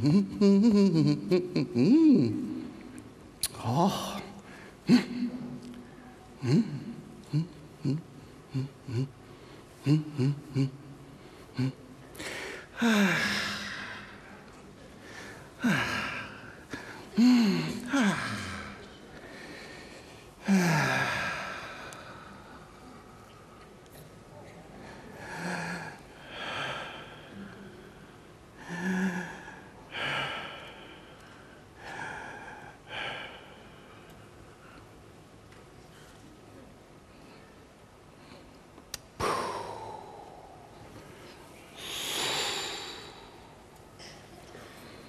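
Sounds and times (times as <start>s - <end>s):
man sighing: 6.4s - 14.2s, 15.2s - 19.7s, 20.4s - 22.4s, 28.6s - 31.2s
man grunting: 12.8s - 14.1s, 15.6s - 18.8s, 20.4s - 21.9s.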